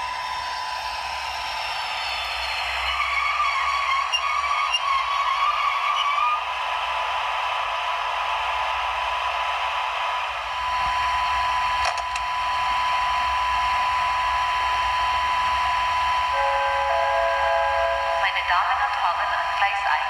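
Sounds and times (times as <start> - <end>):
thin high whine: 0.0 - 6.6, 7.6 - 18.5
steady electronic tones: 16.3 - 18.3.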